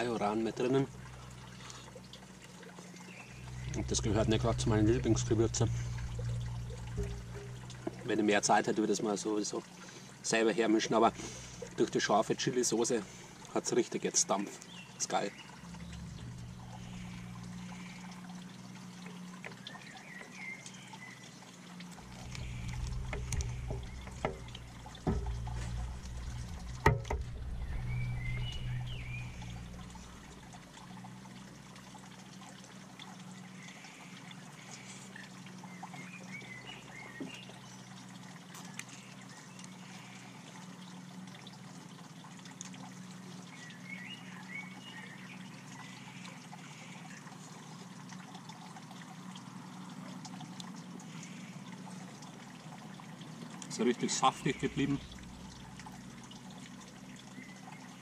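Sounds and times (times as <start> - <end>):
running water trickling: 0.0 - 58.0
low hum: 0.6 - 8.8, 14.6 - 41.6, 54.3 - 58.0
low rumble: 3.3 - 8.2, 15.6 - 17.8, 22.0 - 30.6
sharp knocks: 22.3 - 28.5.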